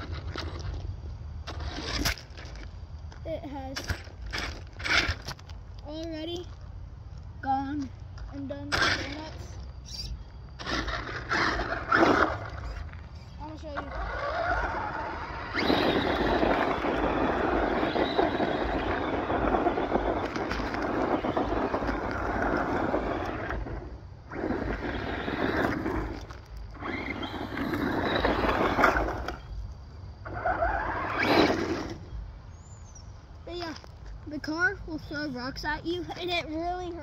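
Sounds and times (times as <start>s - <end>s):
rc truck tyres spinning on gravel: 0.0s - 5.6s, 6.2s - 32.2s.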